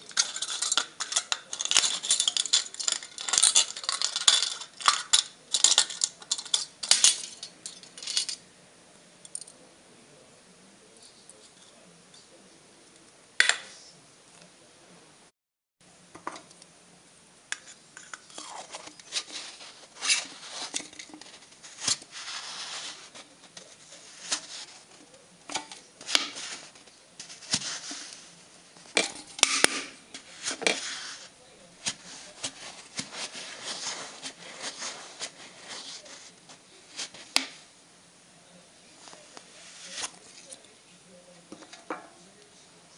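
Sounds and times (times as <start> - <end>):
metal scraping on metal: 0.0 - 8.4, 17.7 - 37.3.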